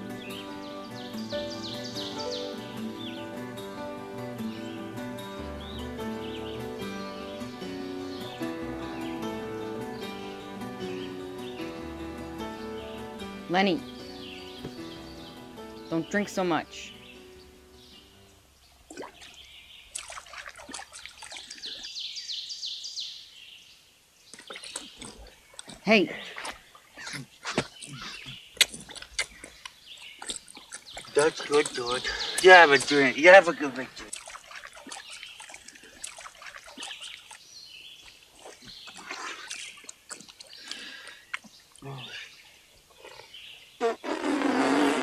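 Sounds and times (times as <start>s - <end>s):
bird calling high notes: 0.0s - 18.4s
creek trickling: 0.0s - 45.0s
dog lapping water: 18.9s - 21.8s, 24.4s - 37.5s, 38.1s - 40.9s.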